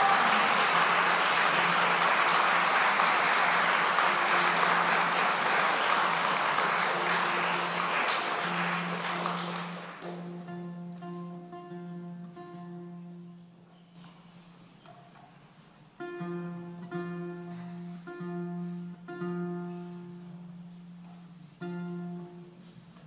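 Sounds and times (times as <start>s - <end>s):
audience applause: 0.0s - 10.2s
plucked guitar notes: 7.5s - 23.0s.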